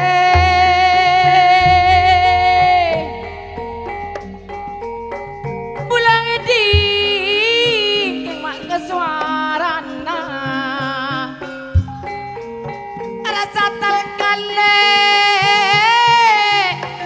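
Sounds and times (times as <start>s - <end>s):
folk ensemble music: 0.0s - 14.6s
low drum thump: 6.8s - 7.2s.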